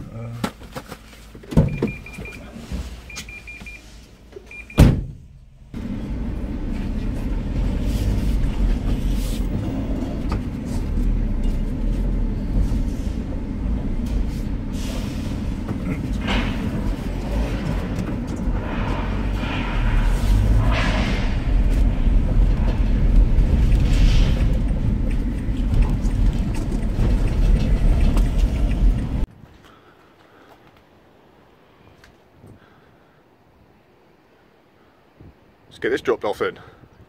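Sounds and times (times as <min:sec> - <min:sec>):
van engine running: 0:00.1 - 0:29.3
short electronic beeps: 0:01.7 - 0:02.4, 0:03.1 - 0:03.8, 0:04.5 - 0:04.8
sharp bang: 0:18.6 - 0:22.8.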